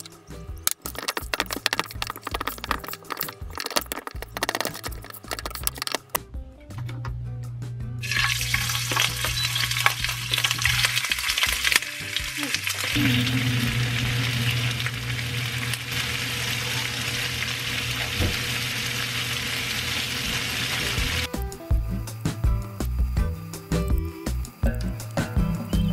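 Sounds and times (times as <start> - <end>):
meat sizzling in hot oil: 8.0 - 25.9.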